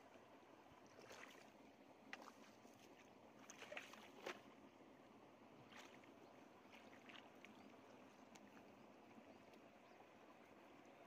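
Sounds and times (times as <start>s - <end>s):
muddy water splashing and sloshing: 0.6s - 4.8s, 5.4s - 8.7s.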